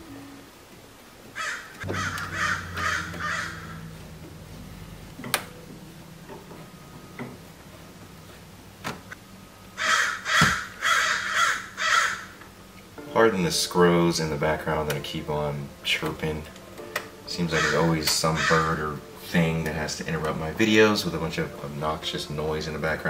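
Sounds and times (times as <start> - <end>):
bird harsh calls: 1.4 - 4.2, 9.7 - 12.4, 17.5 - 18.7.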